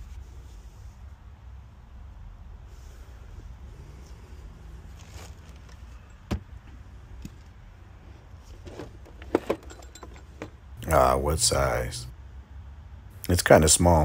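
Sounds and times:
low steady rumble: 0.0 - 14.0
tools being picked up and set down: 8.5 - 10.6
clicks and clunks: 8.6 - 10.6.

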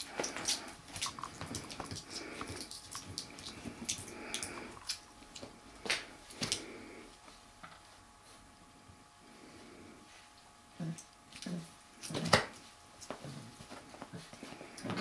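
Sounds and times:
puppies scuffling: 0.0 - 6.6, 12.0 - 15.0
paws and claws tapping: 0.1 - 5.5.

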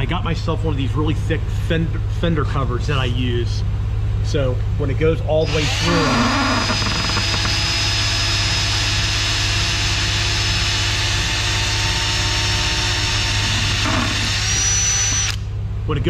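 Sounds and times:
cordless drill whining: 5.4 - 15.5.

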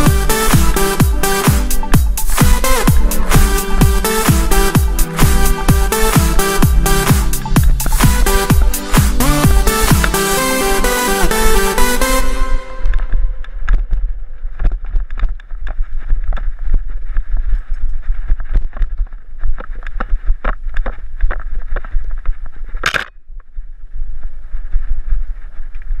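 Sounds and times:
wind rumble on microphone: 12.8 - 26.0
tyres on dirt: 13.4 - 23.4
bike clicks and rattles: 13.4 - 26.0.

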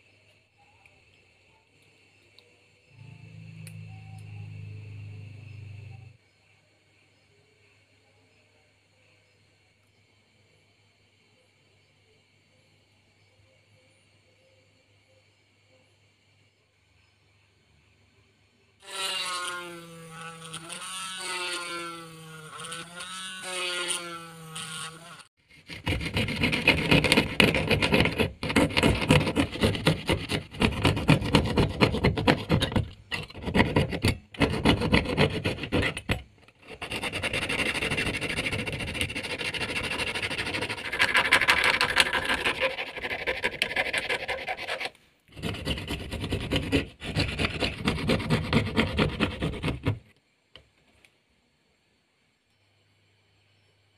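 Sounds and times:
fret saw rasping through plastic: 18.8 - 50.1.

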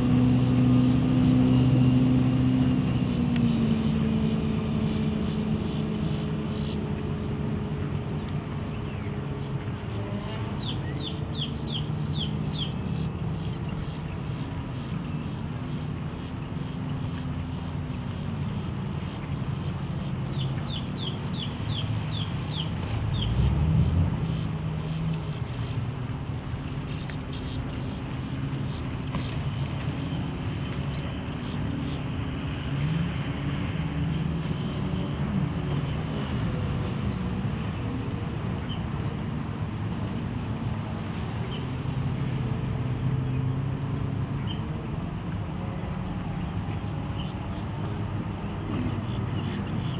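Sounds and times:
boat engine running: 0.0 - 49.9
bird chirping: 20.0 - 23.4.

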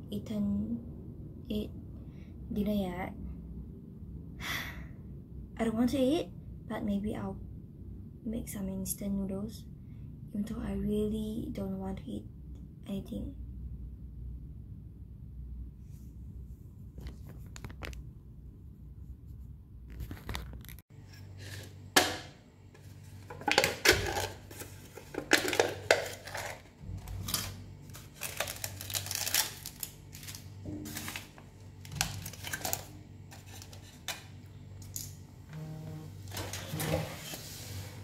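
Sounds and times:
low hum: 0.0 - 17.1, 24.0 - 38.0
packaging crinkling and tearing: 23.1 - 35.0.

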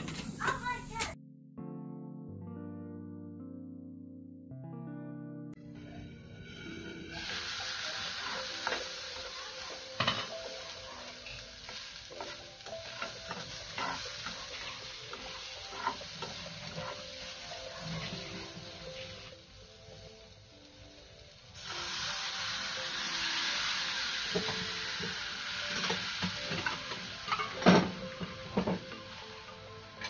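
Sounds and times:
vegetables sizzling in a frying pan: 0.0 - 1.2, 5.8 - 30.0
spatula scraping and knocking pan: 10.0 - 18.7.

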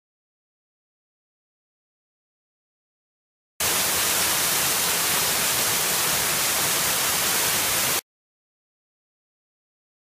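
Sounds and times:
waterfall rushing water: 3.6 - 8.0.

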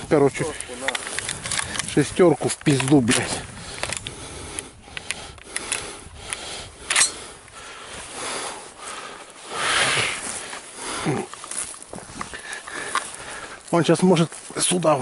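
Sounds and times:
light clicks: 0.5 - 7.2
rustling gear handling: 10.3 - 13.7.

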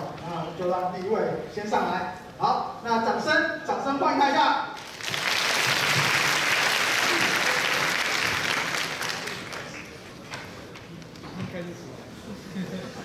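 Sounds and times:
audience applauding: 4.8 - 10.2.

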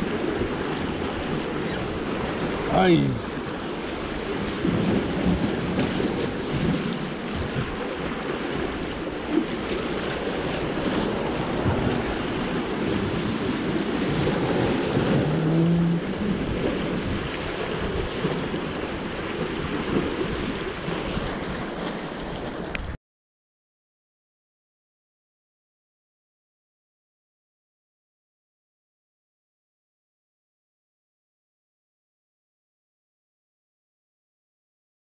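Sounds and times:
sea waves against rocks: 0.0 - 23.0
wind buffeting microphone: 0.0 - 23.0.

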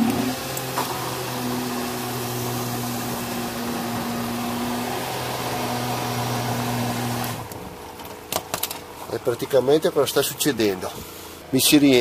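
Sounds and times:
water pump humming: 0.0 - 8.0.

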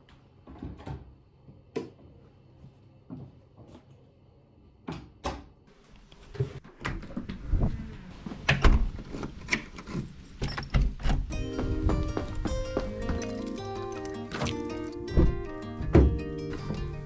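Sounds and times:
door handle and latch clicks: 13.2 - 16.1
door thumping shut: 15.1 - 16.8.

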